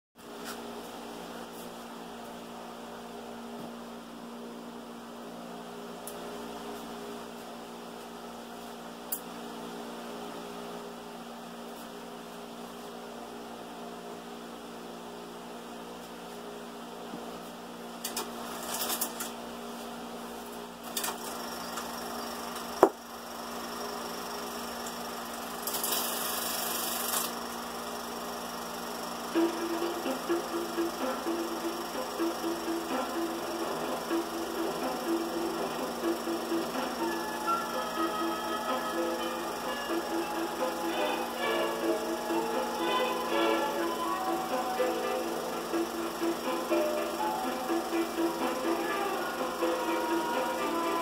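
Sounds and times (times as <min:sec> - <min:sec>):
film projector humming: 0:20.4 - 0:51.0.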